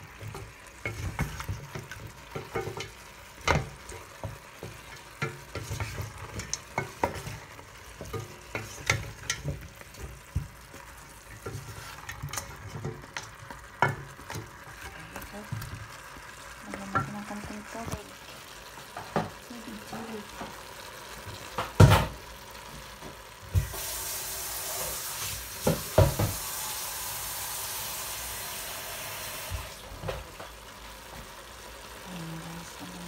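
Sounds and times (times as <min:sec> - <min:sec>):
spatula scraping metal pot: 0:11.2 - 0:15.2.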